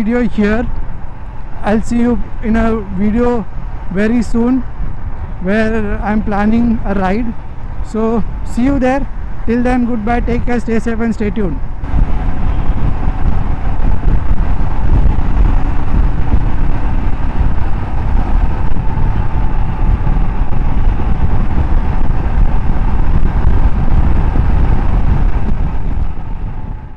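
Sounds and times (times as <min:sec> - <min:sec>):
heavy low rumble: 0:00.0 - 0:26.9
motorcycle engine running: 0:11.8 - 0:26.9.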